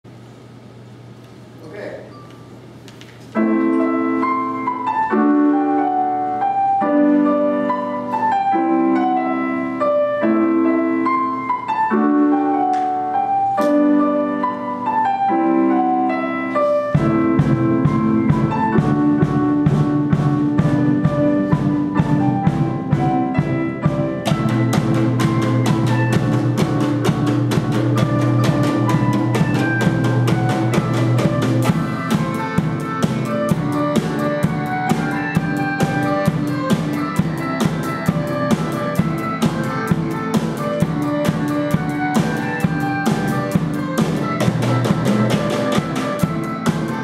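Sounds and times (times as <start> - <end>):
falling piano melody: 3.3 - 47.0
piano chord pattern: 3.3 - 47.0
bass: 17.0 - 47.0
drum beat: 17.0 - 47.0.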